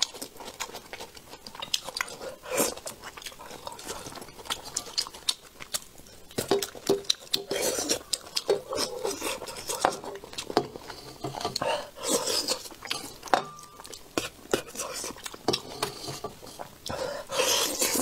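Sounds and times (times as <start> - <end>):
wet chewing: 0.0 - 18.0.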